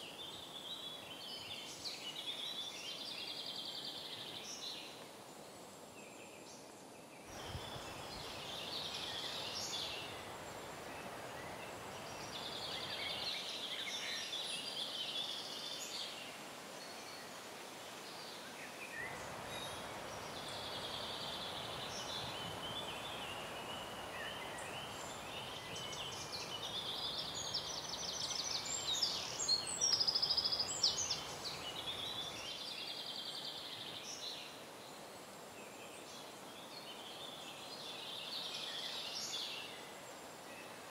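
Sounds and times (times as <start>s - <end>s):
birds singing and trilling: 18.9s - 34.6s.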